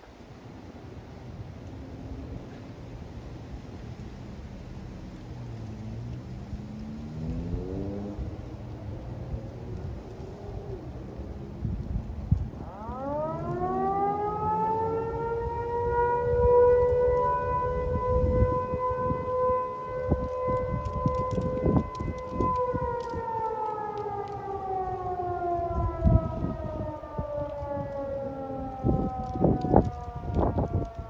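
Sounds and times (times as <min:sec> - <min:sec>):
wind buffeting microphone: 0:06.2 - 0:31.0
mechanical fire siren wailing: 0:06.4 - 0:31.0.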